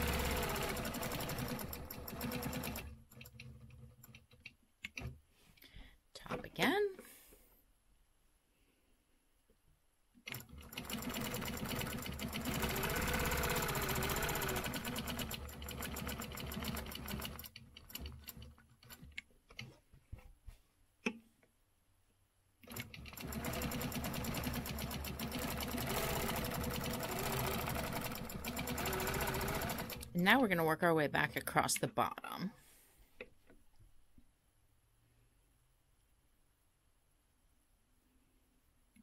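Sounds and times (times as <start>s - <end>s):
quilting machine stitching: 0.0s - 5.1s, 10.3s - 19.1s, 22.6s - 31.9s.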